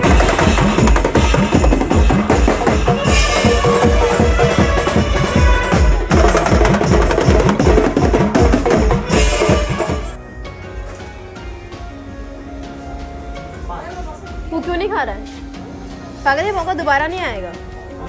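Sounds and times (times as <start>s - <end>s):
dance music with heavy drum beat: 0.0s - 10.2s.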